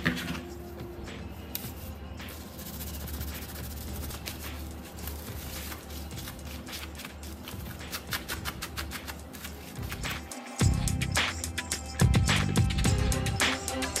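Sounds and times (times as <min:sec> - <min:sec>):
tissue rubbing on glass screen: 0:01.9 - 0:10.2.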